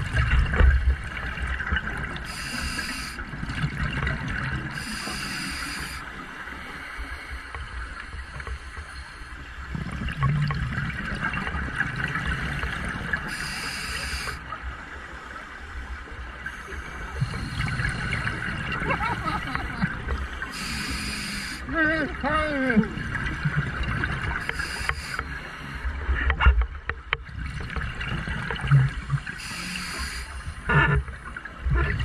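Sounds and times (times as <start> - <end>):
regulator breathing hiss: 2.2 - 3.3, 4.8 - 6.1, 13.3 - 14.4, 20.5 - 21.7, 24.4 - 25.9, 29.3 - 30.6.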